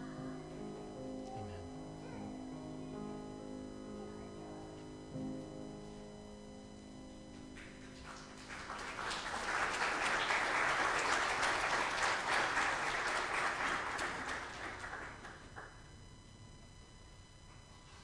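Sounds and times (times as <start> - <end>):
crowd applauding: 7.6 - 15.9.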